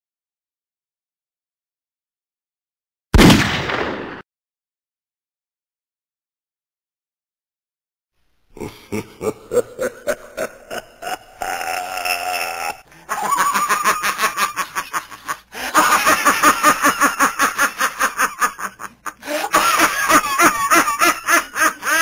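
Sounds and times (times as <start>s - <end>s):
person laughing: 8.6s - 22.0s.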